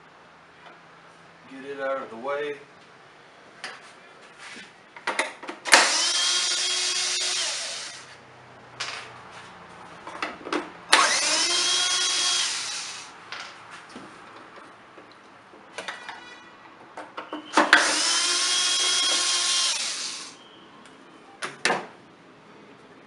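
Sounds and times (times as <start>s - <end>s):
power drill whining: 5.7s - 8.1s, 10.9s - 13.1s, 17.6s - 20.4s.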